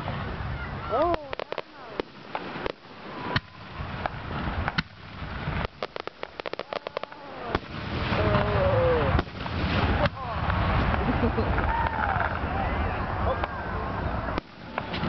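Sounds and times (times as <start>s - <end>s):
fireworks crackling: 0.0s - 15.0s
firework shells bursting: 1.0s - 8.5s, 9.1s - 11.1s.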